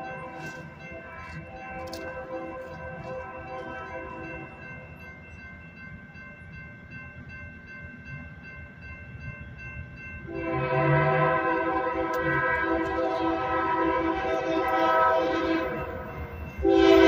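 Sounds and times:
train horn blowing: 0.0s - 4.4s, 10.2s - 17.0s
railroad crossing bell ringing: 0.0s - 17.0s.

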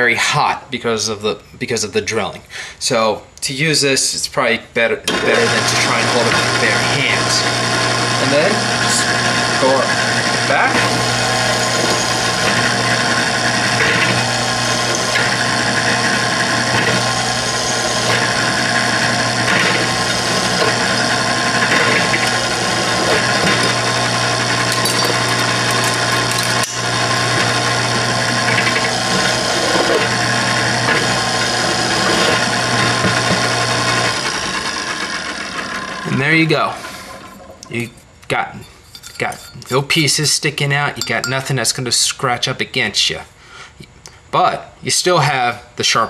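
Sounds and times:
bit scraping on steel: 5.1s - 34.2s, 36.8s - 39.9s
drill press running: 5.1s - 38.0s.

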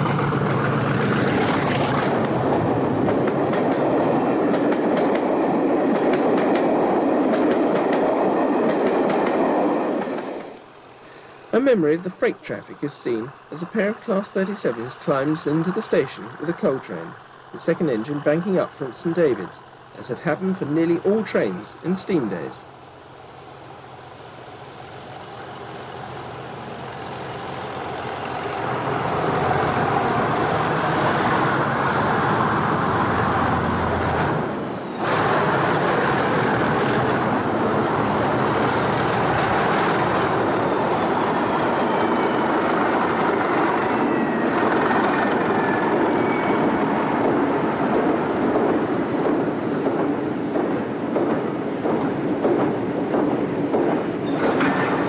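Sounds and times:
diesel locomotive working hard: 0.0s - 55.0s
wagons rumbling past: 26.9s - 55.0s.

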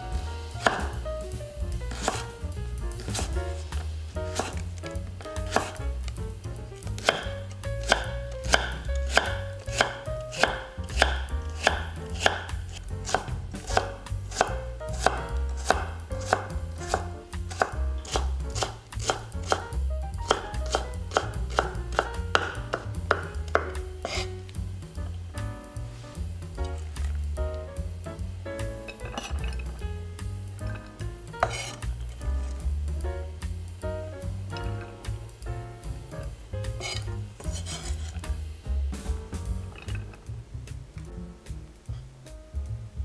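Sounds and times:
knife chopping on cutting board: 0.6s - 1.0s, 1.9s - 2.3s, 3.0s - 5.8s, 6.9s - 24.4s, 30.6s - 32.0s, 36.7s - 38.4s.

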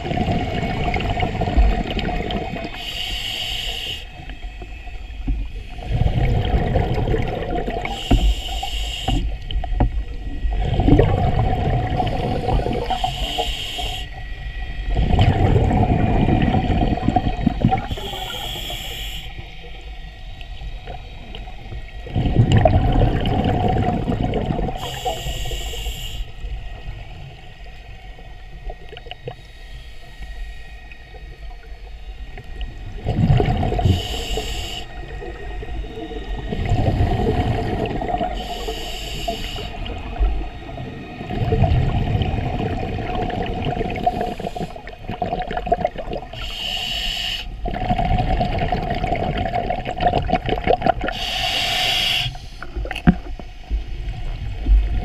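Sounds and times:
bubbling exhaled air: 0.0s - 4.1s, 5.5s - 9.4s, 10.4s - 14.1s, 14.9s - 19.3s, 22.0s - 26.2s, 32.9s - 53.4s
faint steady hum: 0.0s - 55.0s
hissing regulator inhales: 2.7s - 4.2s, 7.8s - 9.4s, 12.2s - 14.2s, 17.8s - 19.5s, 24.8s - 26.5s, 33.7s - 35.1s, 36.3s - 40.0s, 44.0s - 45.0s, 46.3s - 47.6s, 51.0s - 52.9s.

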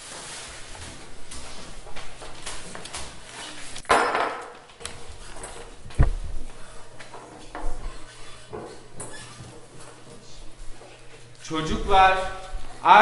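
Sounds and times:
paper rustling: 0.0s - 3.9s
light knocks and shuffling: 4.8s - 12.8s.

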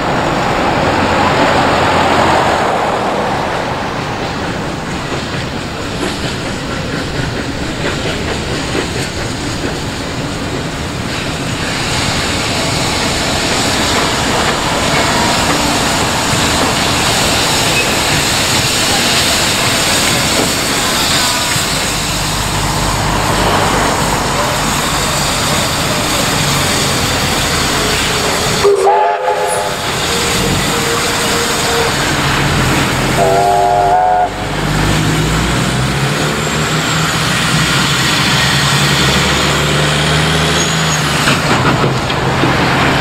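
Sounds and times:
road vehicle passing: 0.0s - 4.3s, 21.5s - 28.3s, 32.0s - 43.0s
rail noise: 0.0s - 43.0s
steam hissing: 4.0s - 43.0s.

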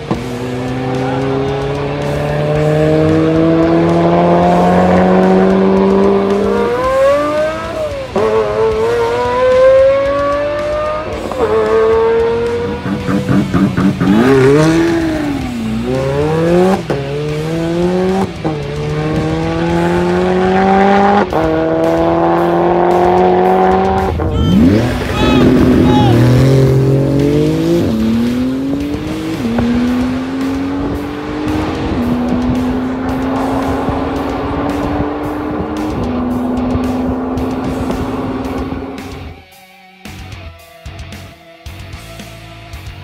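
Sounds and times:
sports car accelerating with upshifts: 0.0s - 39.4s.

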